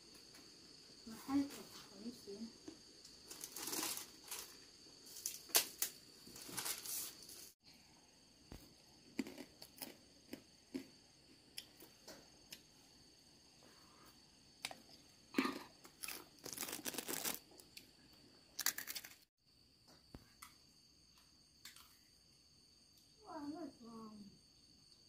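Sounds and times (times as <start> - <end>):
dry rustling and crackling: 3.2 - 7.6, 16.0 - 17.4.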